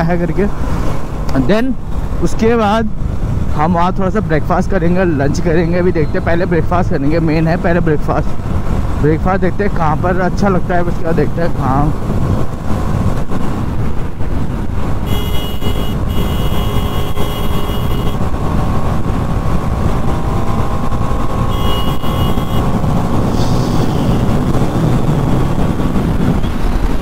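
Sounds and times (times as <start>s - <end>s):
wind rushing over microphone: 0.0s - 27.0s
vehicle horn: 15.0s - 18.2s, 21.5s - 22.7s, 23.8s - 24.3s.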